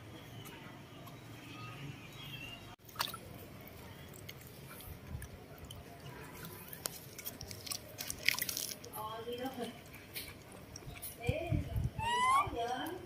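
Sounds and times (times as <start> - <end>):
water sloshing in plastic basin: 2.8 - 11.8.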